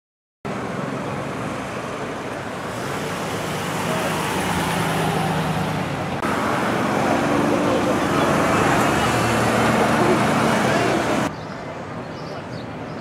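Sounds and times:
street traffic: 0.4 - 13.0
murmur of voices: 9.2 - 11.3.

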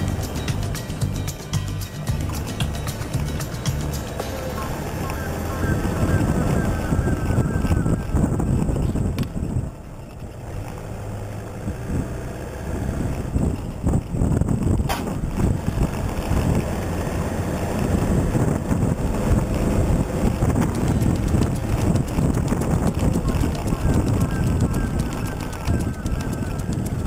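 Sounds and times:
vehicle rumble off-road: 0.0 - 27.0
wind buffeting microphone: 0.0 - 27.0
sharp knock: 14.9 - 15.2.

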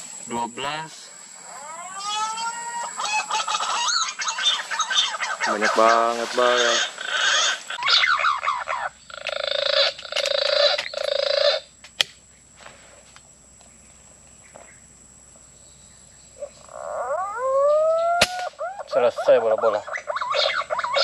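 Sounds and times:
animal harsh calls: 1.4 - 11.7, 16.4 - 21.0
rising animal call: 1.4 - 11.7, 16.4 - 21.0
sharp click: 11.8 - 12.2, 18.2 - 18.6.

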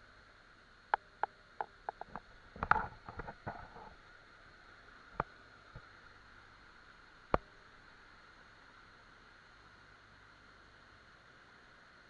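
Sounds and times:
sharp clicks and knocks: 0.9 - 3.9.

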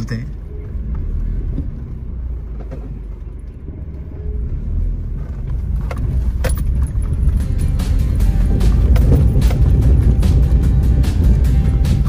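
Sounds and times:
tyres rumbling over gravel: 5.1 - 12.0
sharp knocks or rattles: 5.8 - 12.0.

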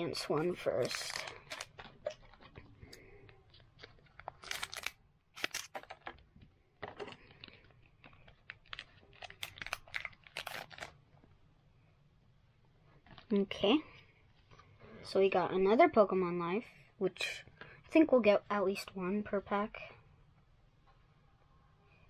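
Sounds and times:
foil wrapper crinkling: 0.1 - 6.3, 7.0 - 11.0.

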